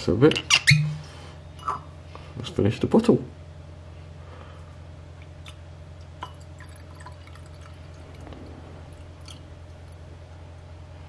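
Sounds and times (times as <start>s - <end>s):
low hum: 3.4s - 11.0s
liquid trickling into a glass: 6.0s - 10.0s.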